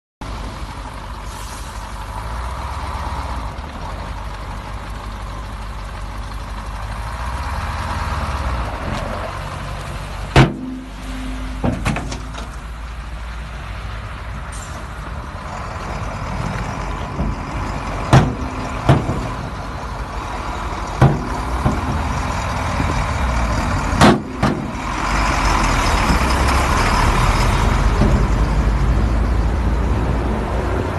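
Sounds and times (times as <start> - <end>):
dump truck engine running: 0.2 - 30.9
sharp knocks: 10.4 - 12.6, 17.2 - 19.4, 21.0 - 22.2.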